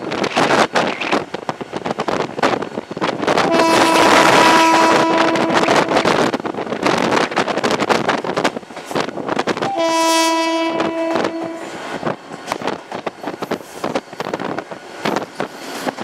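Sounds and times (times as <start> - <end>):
wind noise: 0.0 - 16.0
locomotive air horn blasts: 3.4 - 6.2, 9.6 - 11.8.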